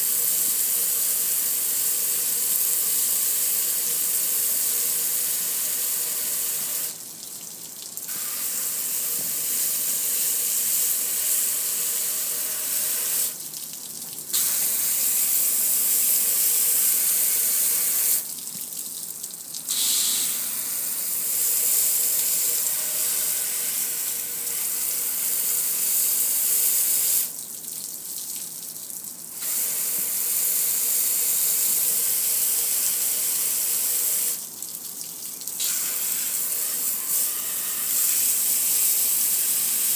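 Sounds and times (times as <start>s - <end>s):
hose water spraying on metal grill: 14.4s - 18.2s, 19.7s - 27.3s, 35.6s - 39.9s.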